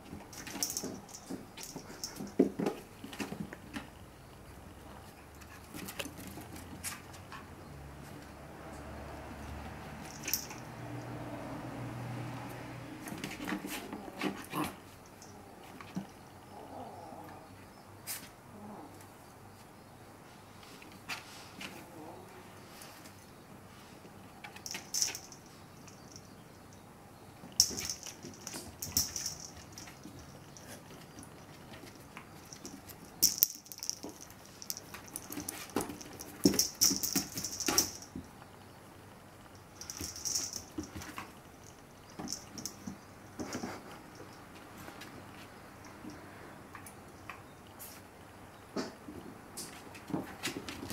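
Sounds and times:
puppy claws clicking on wooden floor: 24.4s - 26.2s, 27.5s - 38.3s.

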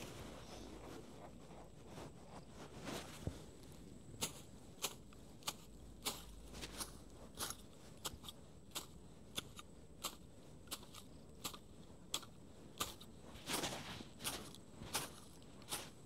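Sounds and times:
snipping clicks on grass: 4.2s - 13.1s.

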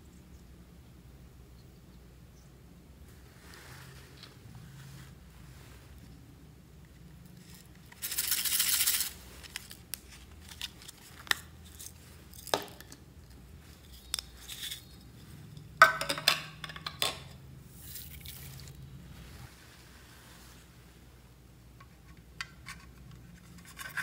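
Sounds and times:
plastic sequins rattling in a case: 7.8s - 9.2s.

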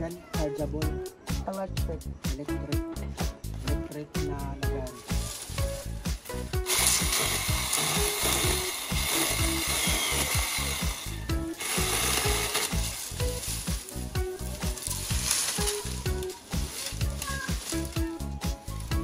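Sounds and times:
background music with steady beat: 0.0s - 19.0s
mini chainsaw cutting weeds: 6.6s - 14.0s, 14.6s - 18.0s.

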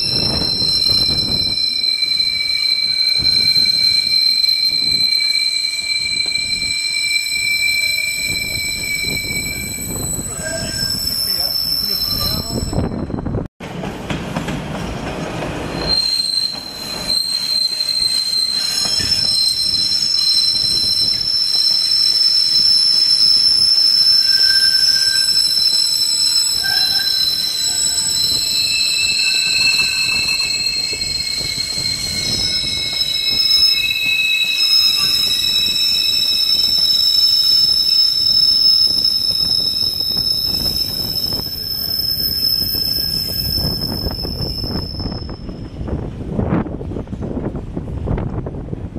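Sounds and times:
train wheels squealing on rail: 0.0s - 13.4s, 15.6s - 46.1s
rumble of wheels on track: 12.2s - 20.0s, 37.7s - 48.9s.

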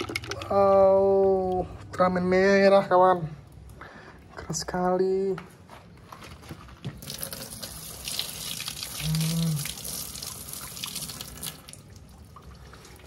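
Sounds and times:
running water splashing: 7.0s - 13.0s.

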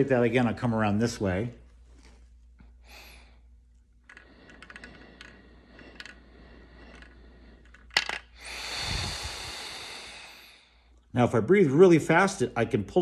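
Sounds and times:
rush of breath: 4.1s - 11.0s
airy hiss of inhalation: 8.4s - 10.7s.

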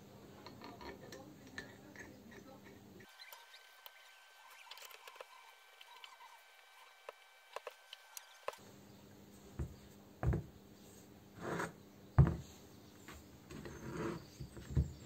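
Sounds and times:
tools knocking on a bench: 9.6s - 10.5s, 12.2s - 12.4s.

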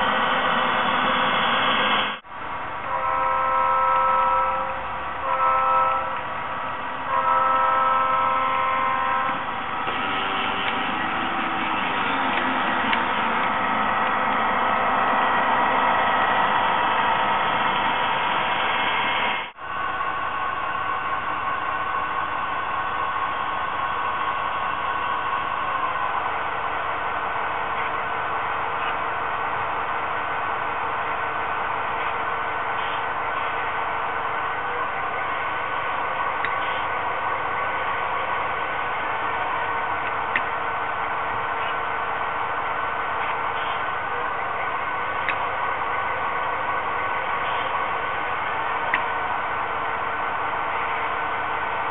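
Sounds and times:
model train running on track: 0.0s - 51.9s.

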